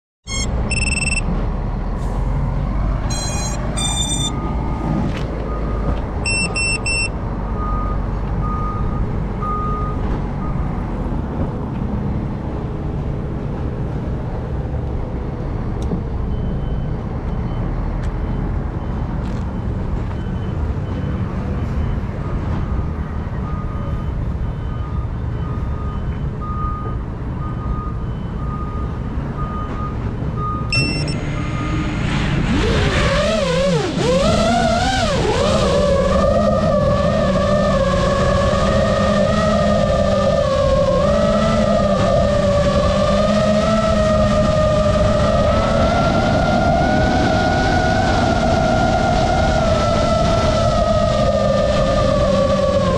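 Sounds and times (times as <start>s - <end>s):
electronic beep tones: 0.2s - 1.3s, 3.1s - 4.6s, 5.5s - 10.7s, 16.3s - 31.9s
wind rumble on microphone: 32.2s - 52.9s.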